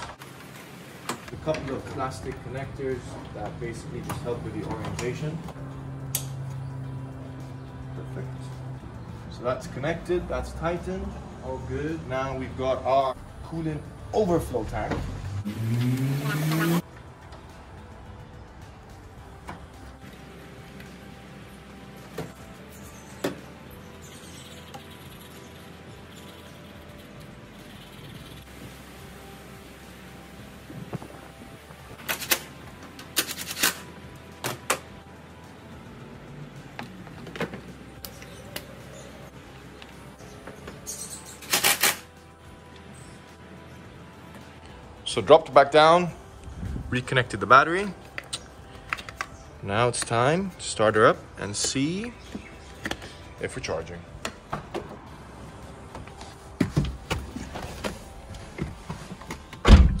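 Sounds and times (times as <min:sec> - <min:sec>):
car door shutting: 0:59.3 - 1:00.0.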